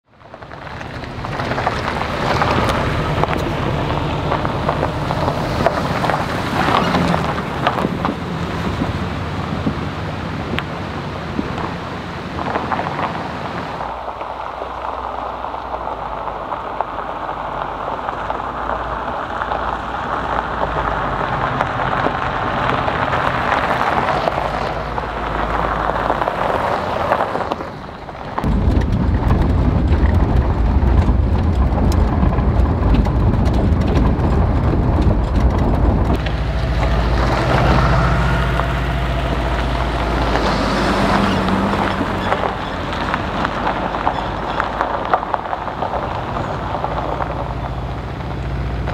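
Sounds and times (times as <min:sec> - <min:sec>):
vehicle engines running: 0:00.0 - 0:48.9
tyres crunching on gravel: 0:00.1 - 0:48.9
low engine rumble inside cab: 0:27.5 - 0:48.9.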